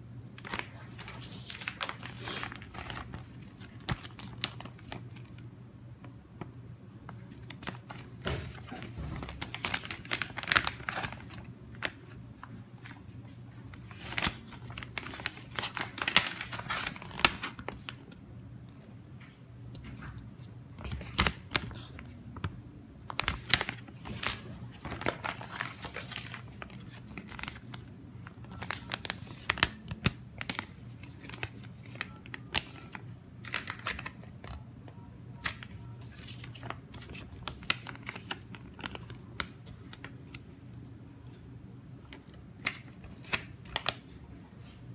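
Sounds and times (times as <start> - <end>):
faint low hum: 0.0 - 44.9
plastic packaging bags crinkling: 0.4 - 5.4, 7.2 - 12.0, 13.8 - 17.9, 23.1 - 34.6, 35.4 - 40.4.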